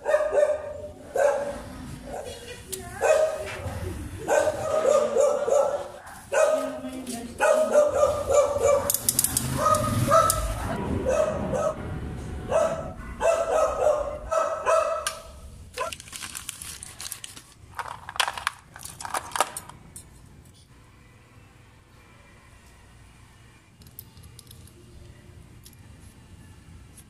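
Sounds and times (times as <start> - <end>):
dog barking: 0.0 - 2.4, 3.0 - 3.6, 4.3 - 6.8, 7.4 - 8.9, 9.5 - 11.8, 12.5 - 16.0
bicycle parts clicking and rattling: 8.7 - 10.6, 15.0 - 20.2, 23.8 - 25.8.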